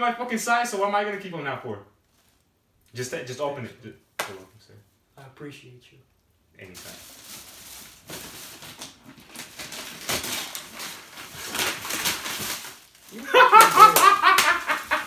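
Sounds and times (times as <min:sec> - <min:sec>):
plastic bag crinkling: 0:06.6 - 0:15.0
man laughing loudly: 0:13.1 - 0:15.0.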